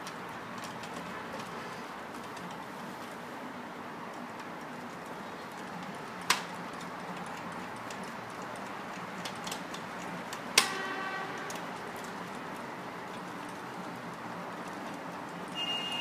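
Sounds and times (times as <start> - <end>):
sharp metallic clicks: 5.5 - 16.0.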